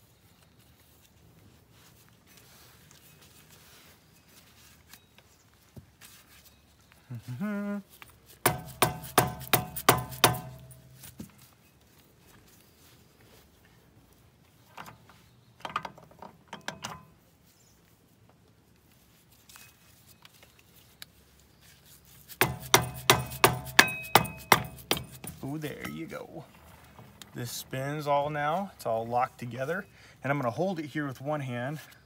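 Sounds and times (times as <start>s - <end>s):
hammer tapping on steel: 8.5s - 11.1s, 22.4s - 25.4s
metal parts clicking and rattling: 22.4s - 25.6s.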